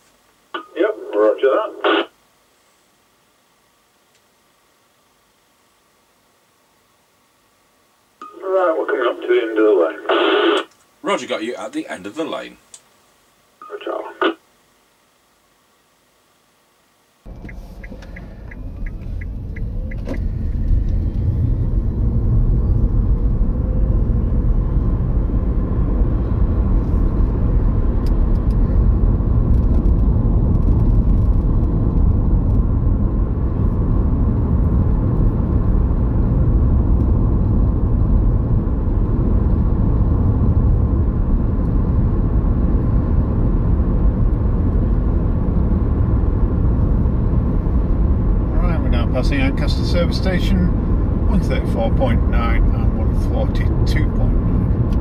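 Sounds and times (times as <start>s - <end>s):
car engine and tyre rumble: 17.3s - 55.0s.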